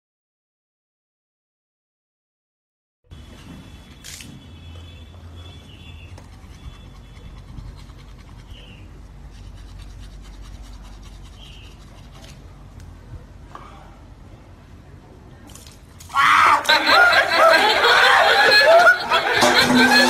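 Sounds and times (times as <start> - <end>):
faint background hum: 3.1 - 20.0
soft scratches and clicks: 9.3 - 13.0.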